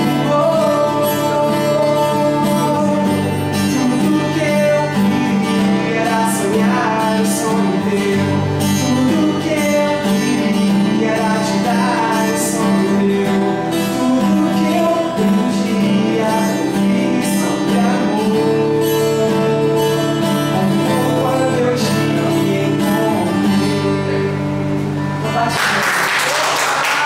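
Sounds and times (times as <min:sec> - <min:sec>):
man singing into microphone: 0:00.0 - 0:24.6
guitar accompaniment: 0:00.0 - 0:27.0
applause: 0:25.4 - 0:27.0.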